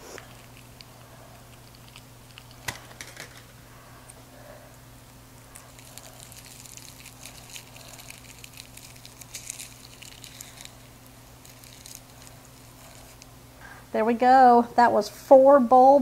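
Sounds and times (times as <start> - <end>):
aluminium foil crinkling: 0.0 - 3.6, 5.0 - 13.4.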